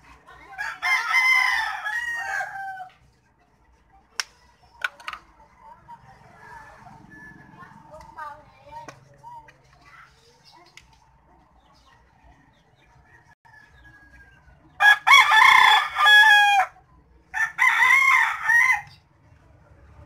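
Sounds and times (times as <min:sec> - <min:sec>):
rooster crowing: 0:00.6 - 0:02.9, 0:13.2 - 0:16.7.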